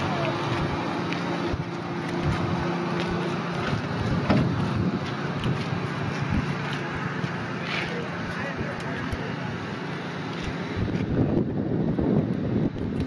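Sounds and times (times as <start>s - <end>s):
boat engine humming: 0.0s - 13.0s
wind buffeting microphone: 0.0s - 13.0s.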